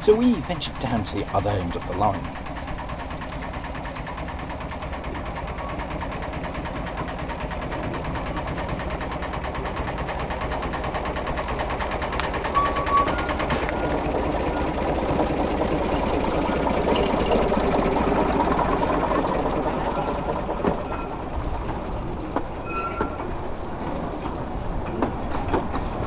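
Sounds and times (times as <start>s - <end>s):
diesel locomotive engine chugging: 0.0s - 26.0s
short high squeak: 12.6s - 14.0s, 22.6s - 23.2s.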